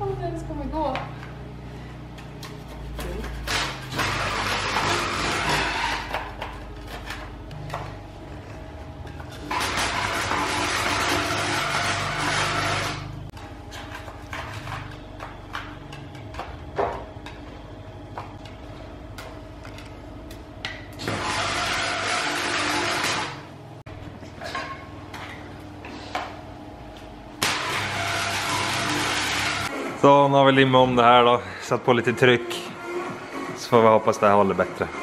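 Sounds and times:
loud steady machine noise: 3.2s - 7.9s, 8.6s - 13.4s, 21.0s - 23.8s, 27.4s - 30.4s.

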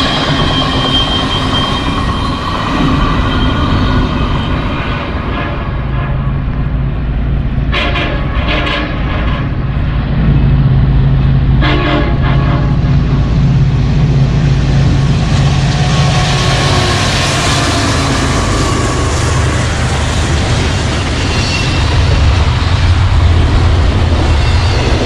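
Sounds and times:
locomotive engine rumble: 0.0s - 25.0s
train wheels rushing on rails: 0.0s - 25.0s
locomotive air horn blasts: 7.7s - 9.6s, 11.6s - 12.9s.

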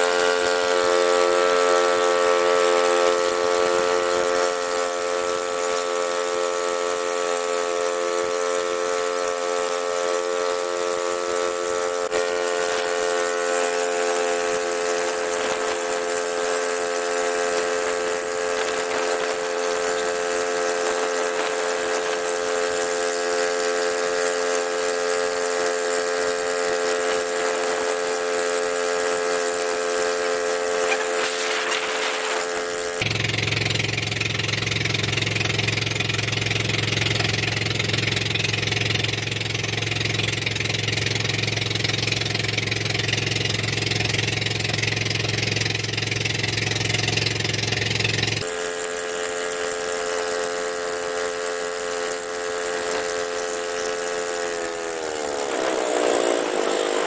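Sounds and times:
deep engine hum: 0.0s - 57.0s
engine running steadily: 0.0s - 57.0s.

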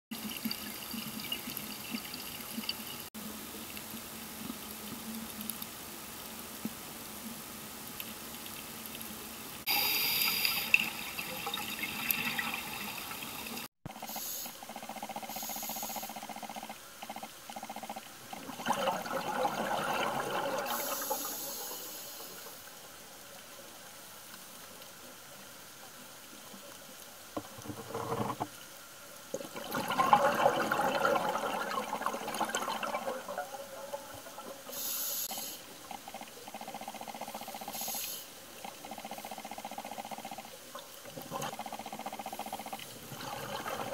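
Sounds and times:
regulator hissing: 9.7s - 10.8s
underwater bubbles gurgling: 18.2s - 21.6s, 29.3s - 35.0s, 38.5s - 43.9s.

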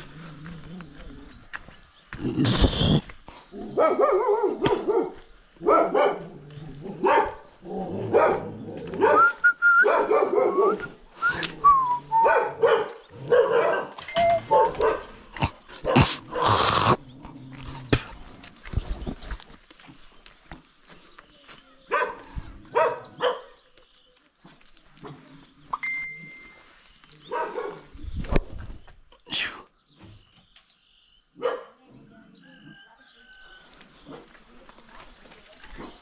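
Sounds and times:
dog barking: 3.7s - 10.9s, 12.2s - 15.2s, 15.8s - 16.6s, 21.9s - 23.6s, 27.2s - 27.9s, 31.4s - 32.2s.

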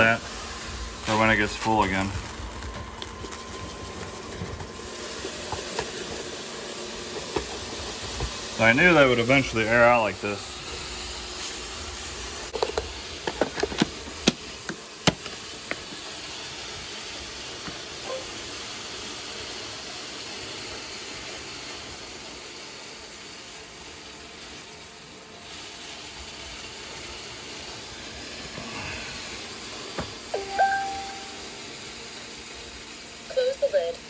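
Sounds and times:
robot vacuum motor hissing: 0.0s - 19.7s.

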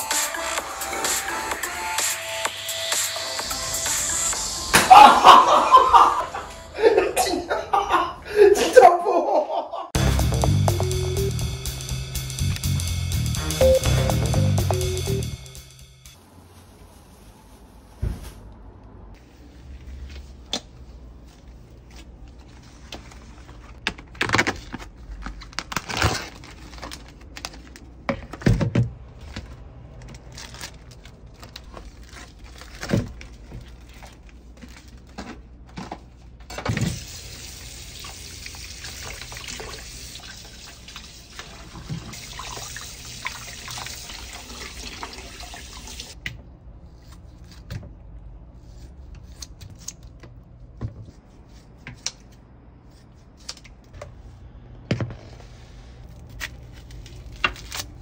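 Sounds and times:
tap water running: 36.7s - 46.2s.

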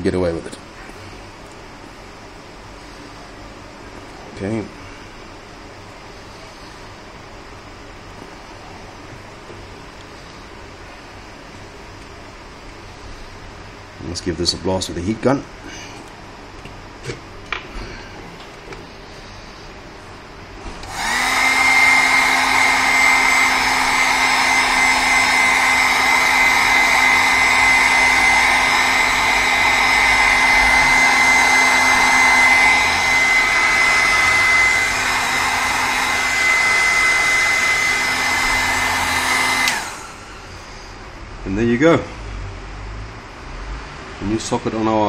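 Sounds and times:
heat gun fan rushing and whining: 0.0s - 45.0s
heat gun switch: 20.8s - 40.2s.

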